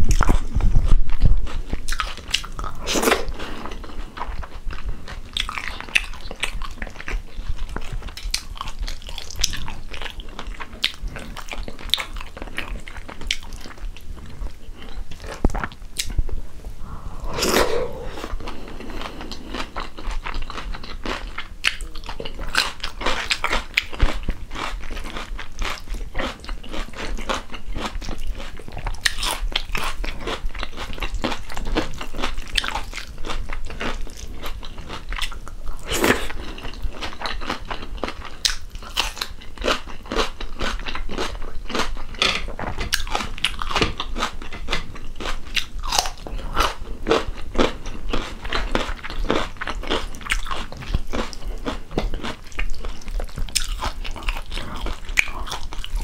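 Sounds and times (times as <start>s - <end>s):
close-miked chewing and mouth noises: 0.0s - 56.0s.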